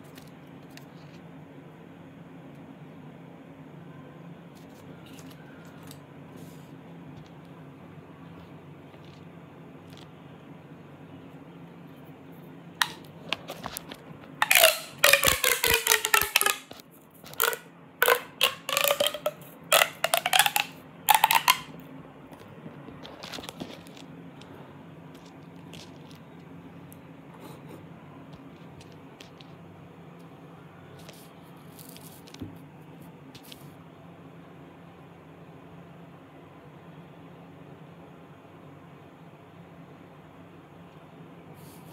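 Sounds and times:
plastic pop tube zipping: 12.8 - 13.8, 14.4 - 21.7.

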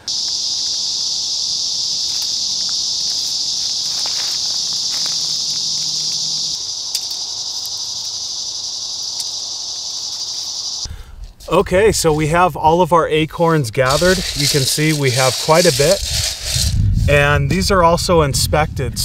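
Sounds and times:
insects buzzing: 0.0 - 11.0, 13.8 - 17.0
branches rustling and clicking: 0.1 - 9.4, 13.9 - 16.8.

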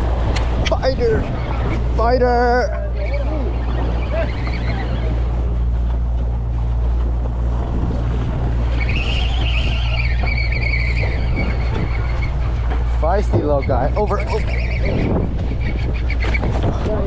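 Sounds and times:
boat engine drone: 0.0 - 17.0
sea noise: 0.0 - 17.0
wind: 0.0 - 17.0
high whine: 7.2 - 16.2.

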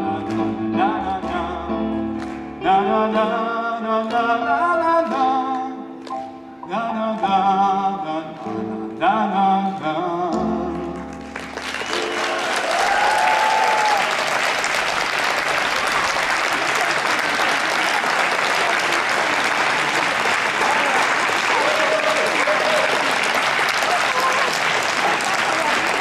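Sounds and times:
man singing: 0.0 - 6.0, 6.6 - 11.2
electric keyboard chords: 0.0 - 13.6
audience applause: 10.8 - 26.0.

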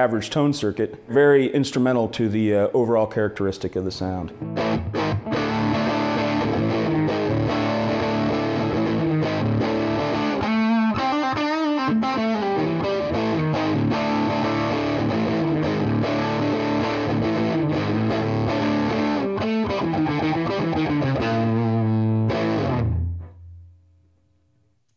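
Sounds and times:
distorted electric guitar: 4.3 - 23.6.

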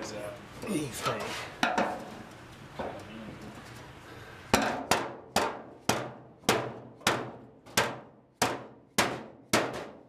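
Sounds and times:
hammer striking sheet metal: 4.5 - 10.0.

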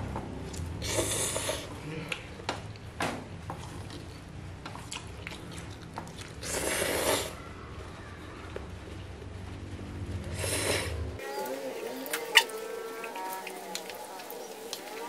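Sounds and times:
chewing: 3.5 - 7.4, 12.1 - 15.0
person slurping noodles: 6.4 - 7.4.

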